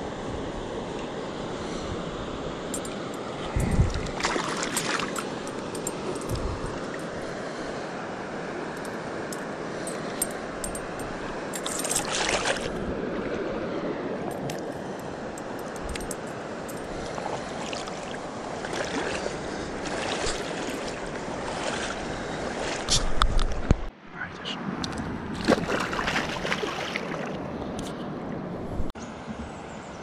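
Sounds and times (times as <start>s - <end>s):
shallow river water rippling: 0.0s - 24.0s, 24.6s - 30.0s
fishing tackle clicks: 3.6s - 7.2s, 8.8s - 12.7s, 14.3s - 16.9s
fish splashing: 3.8s - 7.1s, 11.6s - 13.5s, 16.9s - 23.2s, 25.4s - 27.4s.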